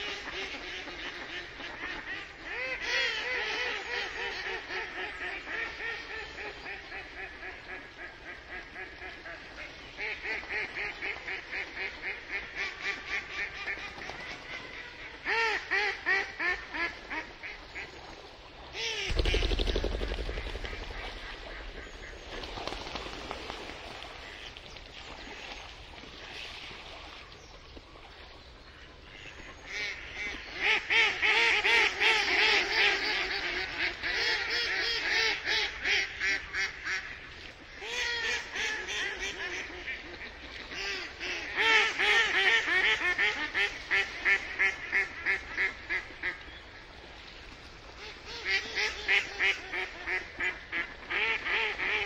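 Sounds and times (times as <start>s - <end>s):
duck quacking: 48.3s - 52.0s.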